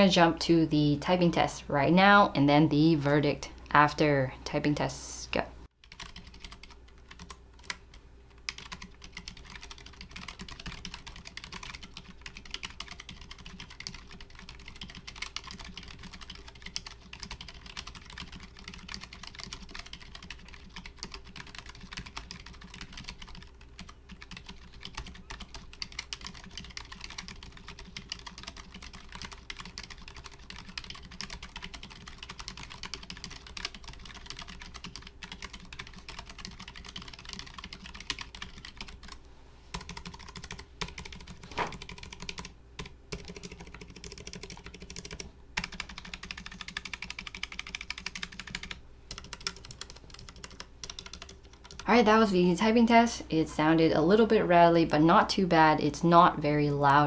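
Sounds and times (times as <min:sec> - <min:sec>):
mechanical keyboard typing: 0:05.8 - 0:51.9.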